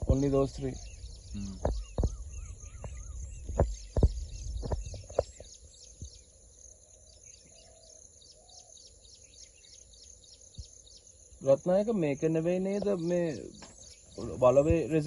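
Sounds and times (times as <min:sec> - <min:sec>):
low wind rumble: 0:00.0 - 0:06.3
small birds chirping: 0:00.0 - 0:15.0.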